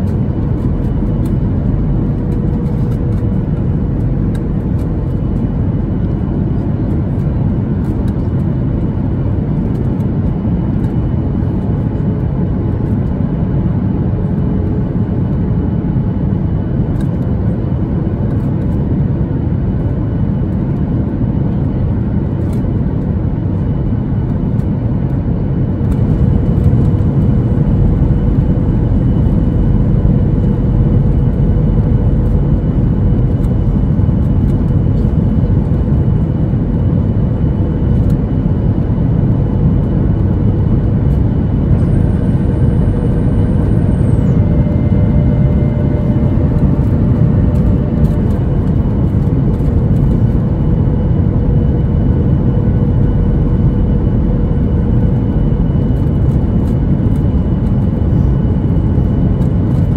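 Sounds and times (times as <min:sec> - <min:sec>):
jet engine rumble and airflow: 0:00.0 - 0:59.9.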